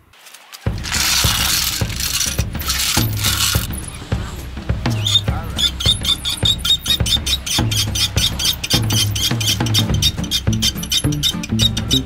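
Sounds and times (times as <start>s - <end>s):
bass line: 0.7s - 12.0s
drum beat: 0.7s - 12.0s.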